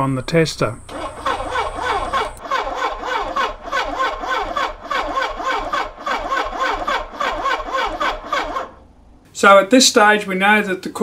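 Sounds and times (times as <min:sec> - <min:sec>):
engine cranking on starter: 0:00.8 - 0:08.8.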